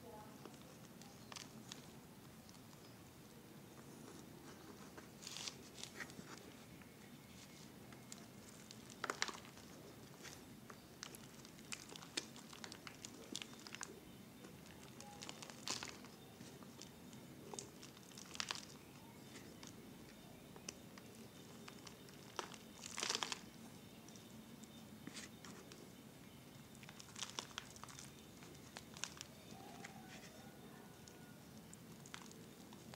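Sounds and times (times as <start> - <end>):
plastic bottle crinkling: 5.0 - 25.8, 26.6 - 30.3.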